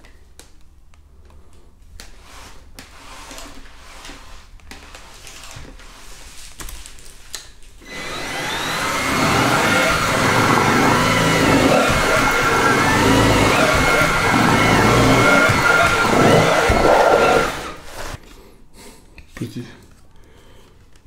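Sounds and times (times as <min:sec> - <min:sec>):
vacuum cleaner motor whine: 0:07.8 - 0:18.2.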